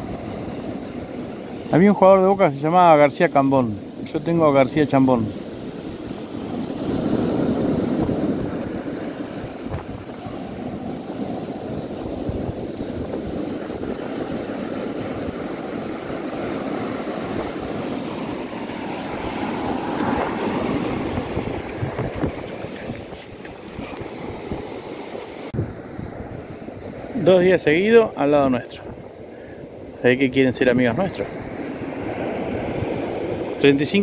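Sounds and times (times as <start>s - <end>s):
wind buffeting microphone: 0.0s - 34.0s
surf breaking on pebbly beach: 5.4s - 25.5s.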